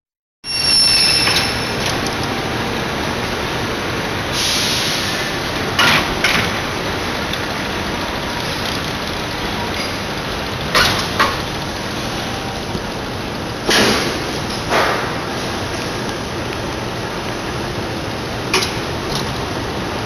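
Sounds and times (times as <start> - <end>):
production line machinery running: 0.6 - 20.0
burst of hiss: 4.3 - 5.3.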